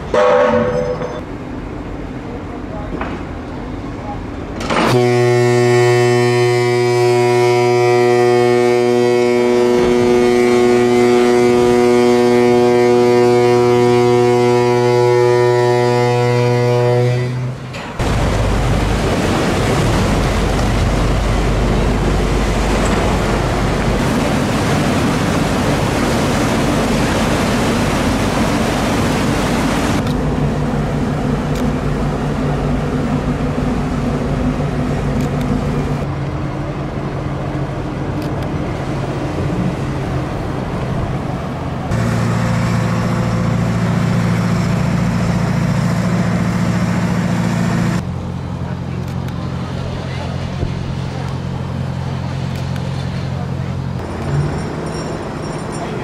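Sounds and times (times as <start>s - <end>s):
steady engine hum: 1.3s - 56.0s
water rushing and splashing: 17.2s - 56.0s
deep rumble: 18.0s - 54.2s.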